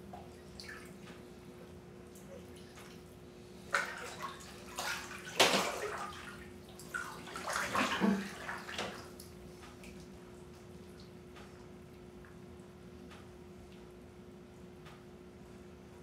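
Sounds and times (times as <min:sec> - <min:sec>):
bathwater splashing: 0:00.3 - 0:01.1, 0:02.1 - 0:10.2.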